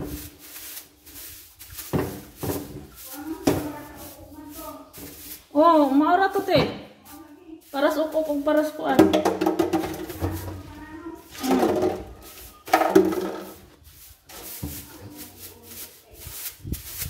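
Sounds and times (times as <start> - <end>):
hand brush sweeping tiled floor: 0.0 - 17.0
voices talking: 3.0 - 13.6.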